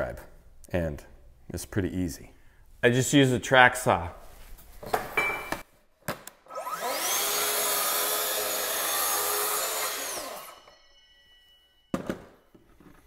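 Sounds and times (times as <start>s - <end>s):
track saw whining and cutting: 6.5s - 11.9s.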